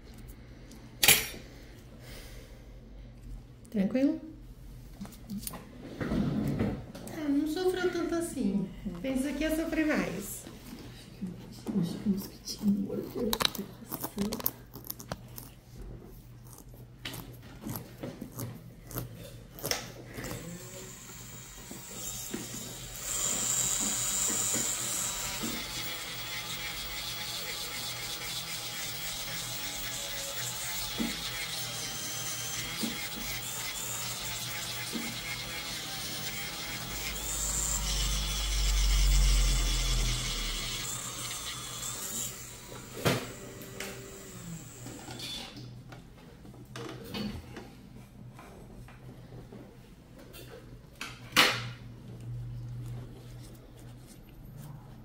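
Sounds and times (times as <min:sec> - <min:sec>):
electric nail drill whining: 0:20.2 - 0:45.5.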